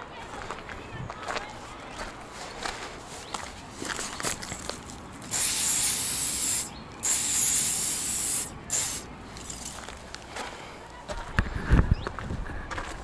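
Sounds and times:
paint spray hissing: 5.3 - 9.1.

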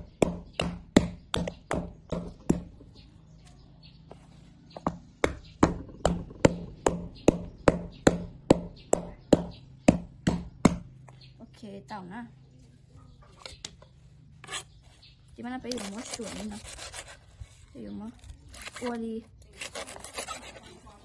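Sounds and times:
wooden pestle pounding on board: 0.0 - 2.8, 4.8 - 10.9.

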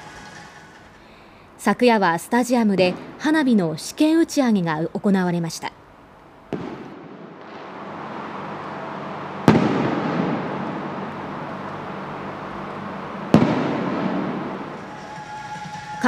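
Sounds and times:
firework shells booming: 2.8 - 3.3, 6.5 - 16.0
rolling echo: 6.4 - 16.0.

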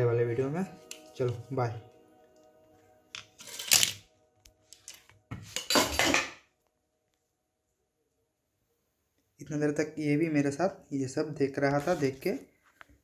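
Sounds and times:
faint background music: 0.0 - 7.0, 9.4 - 12.7.

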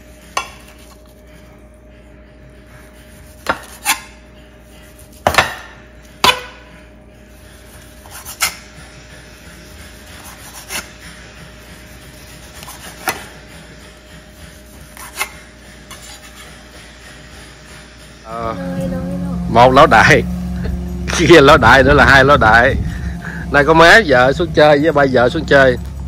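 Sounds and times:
utensil striking a board: 3.4 - 4.1, 5.2 - 6.7, 12.6 - 13.3.

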